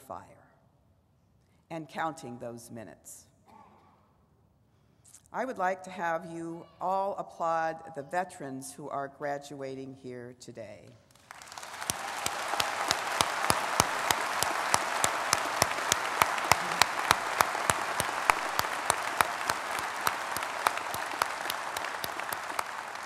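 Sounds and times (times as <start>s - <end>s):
audience applauding: 11.1s - 23.0s
sharp close hand claps: 11.1s - 23.0s.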